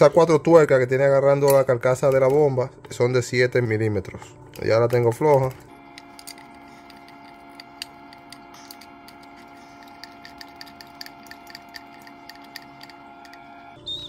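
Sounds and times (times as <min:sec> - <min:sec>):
faint steady hum: 0:00.0 - 0:14.0
metallic ticks of nut spinning: 0:04.9 - 0:13.6.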